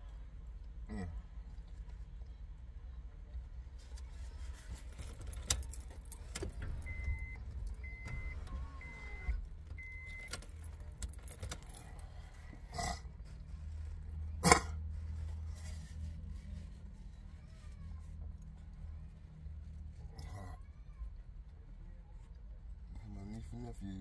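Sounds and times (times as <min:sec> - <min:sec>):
low steady hum: 0:00.0 - 0:24.0
things clattering inside a car: 0:03.8 - 0:12.6
electronic beep: 0:06.8 - 0:10.3.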